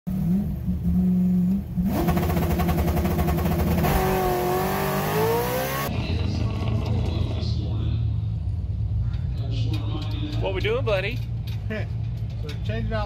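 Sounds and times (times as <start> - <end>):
car engine revving under full throttle: 0.1 - 5.9.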